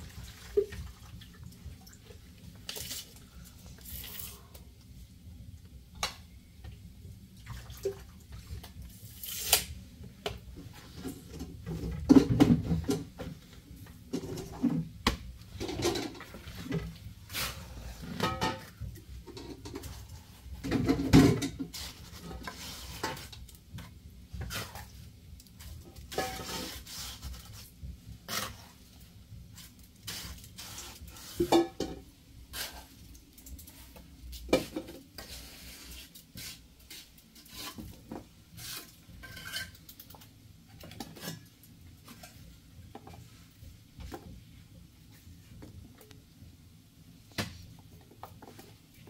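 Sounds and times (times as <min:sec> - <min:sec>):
metal pots and pans clinking: 0:15.6 - 0:16.3, 0:18.2 - 0:20.0, 0:26.1 - 0:26.6, 0:31.4 - 0:32.0, 0:39.2 - 0:39.8.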